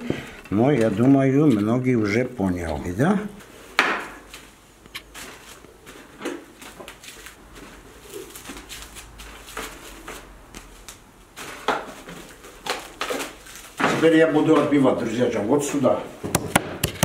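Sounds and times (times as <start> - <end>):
plastic film crinkling: 6.7 - 14.8.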